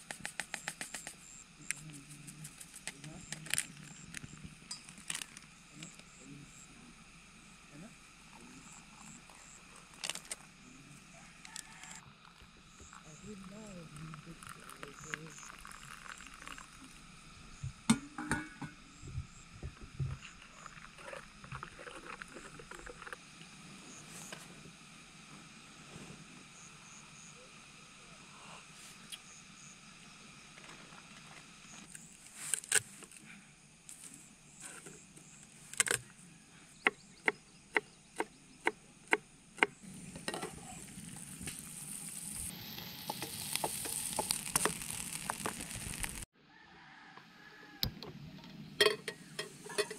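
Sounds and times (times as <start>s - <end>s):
food sizzling on a camp stove: 0.0s - 46.4s, 48.5s - 49.9s.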